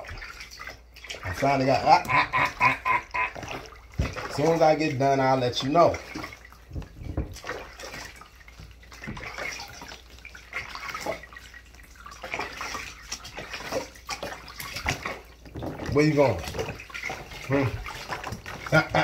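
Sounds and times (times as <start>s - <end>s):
water splashing in bathtub: 0.0s - 19.0s.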